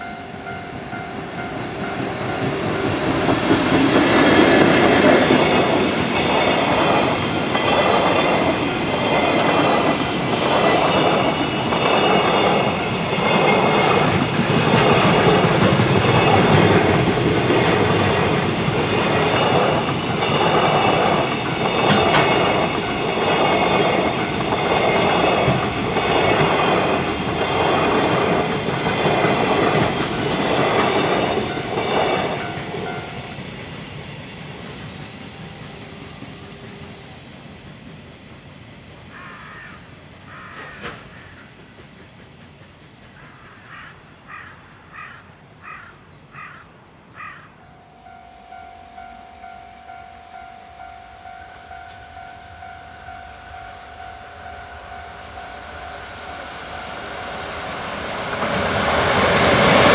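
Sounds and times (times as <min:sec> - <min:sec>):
train wheels clattering over rail joints: 0:01.6 - 0:36.9, 0:40.4 - 0:43.9
level crossing bell ringing: 0:47.7 - 0:57.4.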